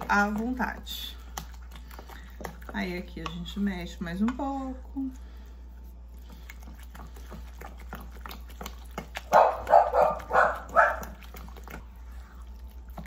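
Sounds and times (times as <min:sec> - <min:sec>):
wooden spoon stirring dough: 0:00.0 - 0:13.0
dog barking: 0:09.3 - 0:11.2.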